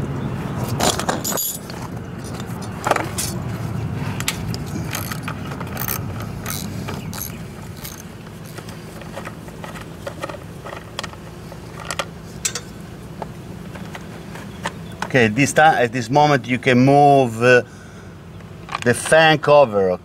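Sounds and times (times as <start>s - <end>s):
low steady hum: 0.0s - 20.0s
hand tool clicking on screws: 4.2s - 11.2s.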